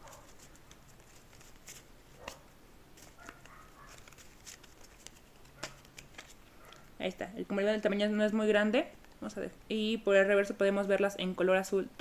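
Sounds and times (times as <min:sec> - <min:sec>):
cards clicking and sliding: 0:00.2 - 0:06.9.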